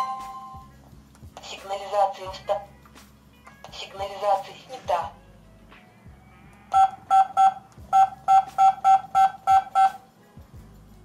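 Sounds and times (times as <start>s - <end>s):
keypad beeps: 6.7s - 10.0s.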